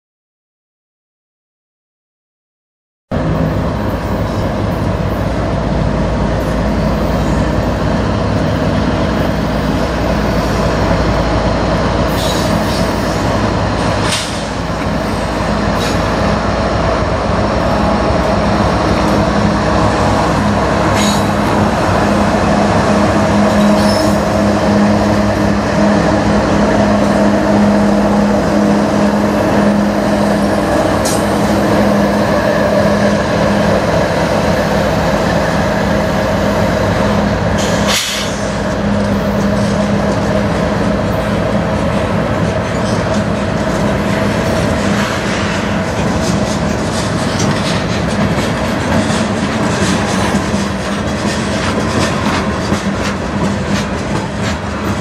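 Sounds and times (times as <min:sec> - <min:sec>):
diesel train engines droning: 0:03.1 - 0:55.0
high-pitched wheel squeals: 0:23.6 - 0:24.3.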